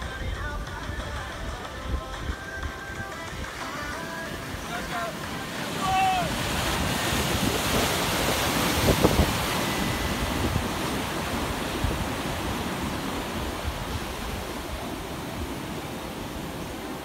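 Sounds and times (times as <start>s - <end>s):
ocean surf washing: 0.0s - 17.0s
wind buffeting microphone: 4.4s - 17.0s.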